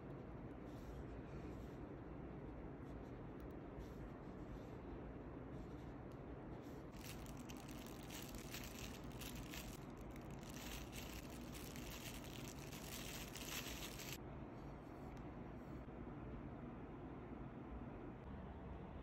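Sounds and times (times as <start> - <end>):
thin plastic crinkling: 7.0 - 14.2.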